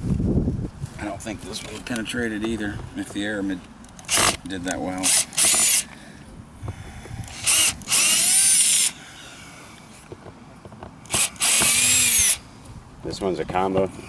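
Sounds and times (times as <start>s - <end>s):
cordless drill whirring: 4.0s - 6.0s, 6.6s - 10.0s, 11.0s - 12.4s.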